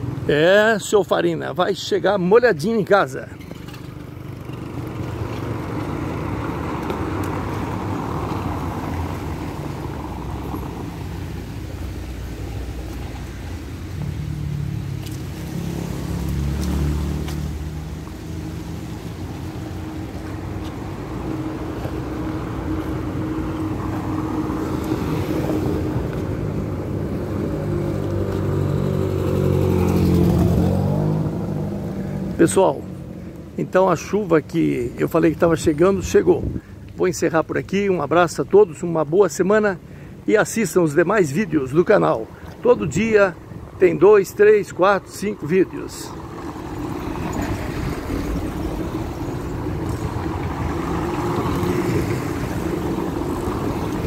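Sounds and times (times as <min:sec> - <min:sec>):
cars passing on wet road: 0:00.0 - 0:54.0.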